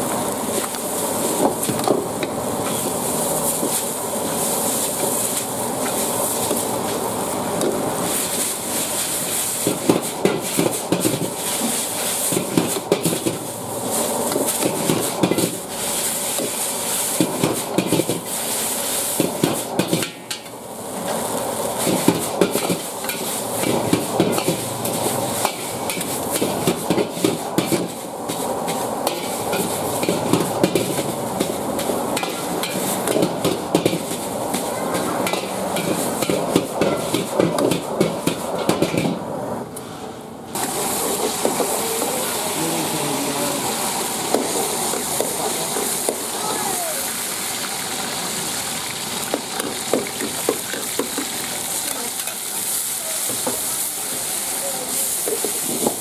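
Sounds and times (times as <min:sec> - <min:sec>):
frying hiss: 0:00.0 - 0:56.0
metal ladle scraping wok: 0:21.1 - 0:39.1.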